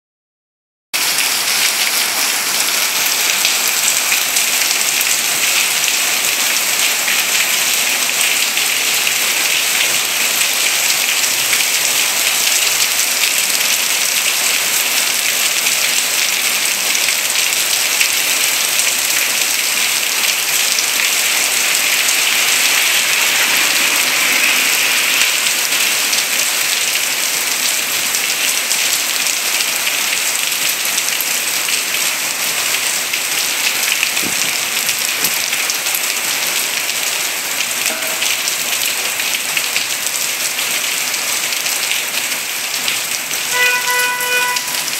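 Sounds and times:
heavy rain on pavement: 1.0 - 44.9.

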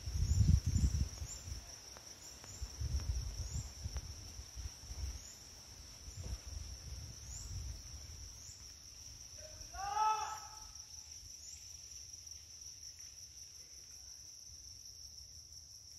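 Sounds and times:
wind rumble on microphone: 0.0 - 9.6
insects droning: 0.0 - 15.9.

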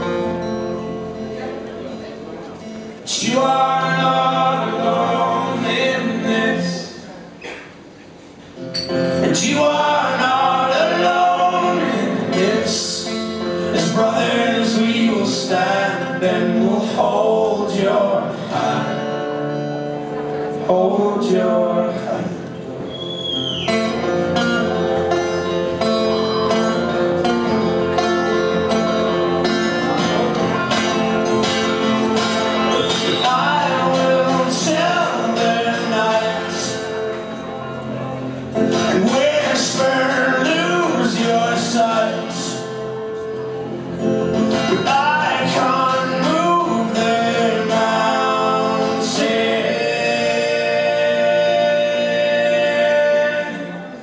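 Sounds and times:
strummed acoustic guitar: 0.0 - 54.0
person singing: 3.1 - 7.0, 9.2 - 19.2, 32.5 - 43.2, 44.5 - 54.0.

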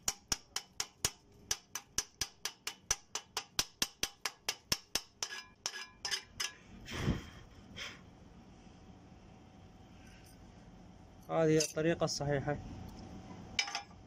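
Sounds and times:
hammer tapping on metal: 0.0 - 6.6.

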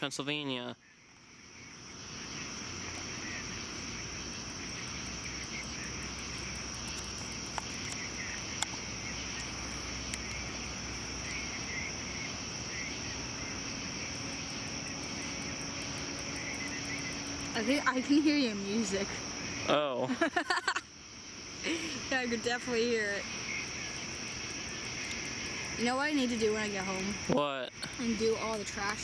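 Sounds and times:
crickets and insects chirping: 0.0 - 29.0
low steady rumble: 1.2 - 29.0
faint clicks: 6.2 - 10.5, 25.0 - 25.3.

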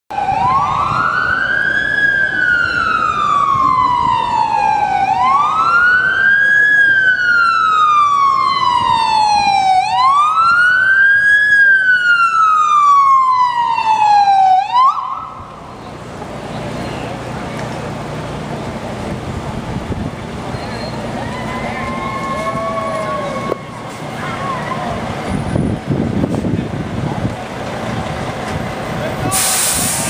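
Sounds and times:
police siren wailing: 0.1 - 15.8, 20.9 - 26.0.

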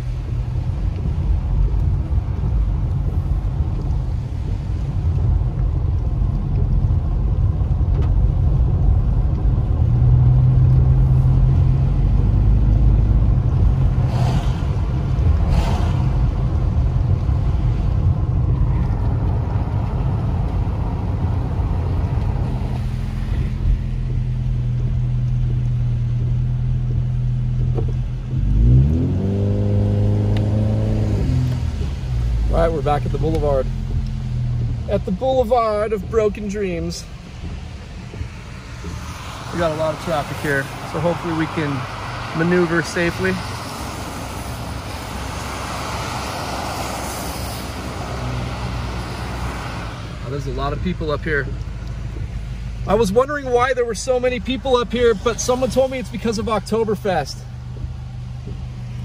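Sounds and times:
car engine and tyres rumbling: 0.0 - 59.0
tyre hiss on wet road: 14.0 - 14.8, 15.4 - 16.4, 38.2 - 50.3.

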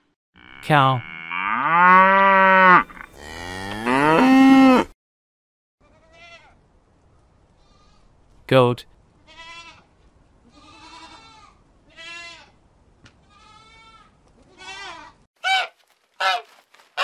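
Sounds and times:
goat bleating: 5.8 - 6.6, 9.3 - 12.6, 13.2 - 16.5
geese honking: 15.4 - 17.0.

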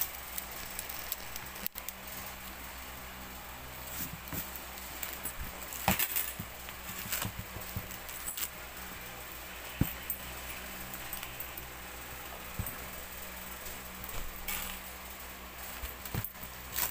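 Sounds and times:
metal chain clinking: 3.9 - 16.9.

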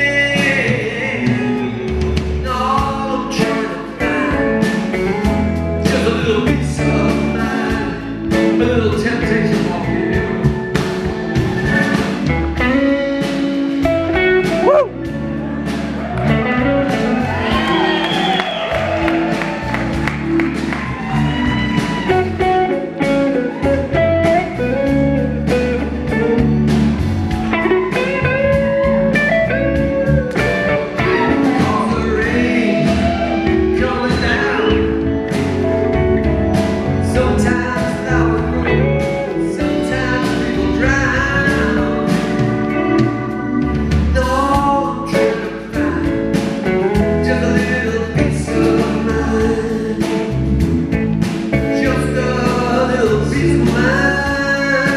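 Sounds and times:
man singing: 0.0 - 13.8, 29.8 - 35.6, 36.5 - 50.7, 51.5 - 54.9
bass guitar: 0.0 - 54.9
drum kit: 0.0 - 54.9
electric guitars: 0.0 - 54.9
organ: 0.0 - 54.9.

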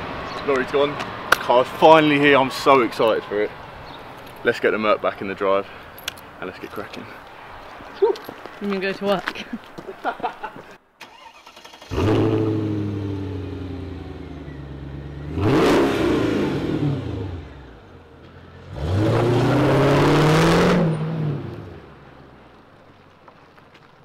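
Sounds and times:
car engine starting and revving: 11.0 - 22.1.

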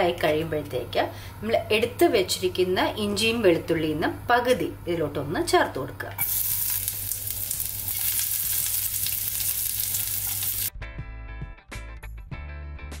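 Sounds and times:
ginger and garlic sizzling in oil: 6.2 - 10.7
background music: 9.7 - 13.0.

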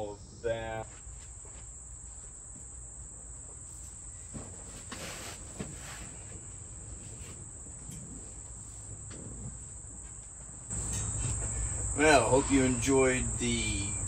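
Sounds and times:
insects trilling: 0.0 - 14.0
footsteps: 0.8 - 2.7
knocks and rustles: 4.2 - 11.6.

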